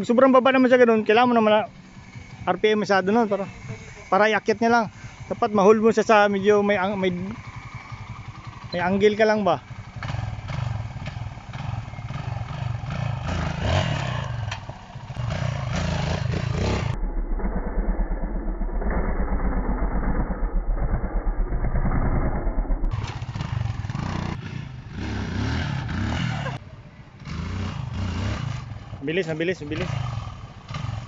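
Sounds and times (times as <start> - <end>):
dirt bike engine revving: 0.6 - 17.0, 18.9 - 26.6, 27.2 - 31.0.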